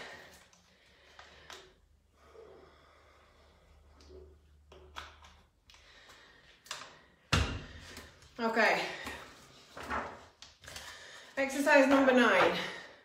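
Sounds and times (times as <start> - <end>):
person breathing: 0.0 - 4.3, 5.7 - 8.2, 10.6 - 11.4.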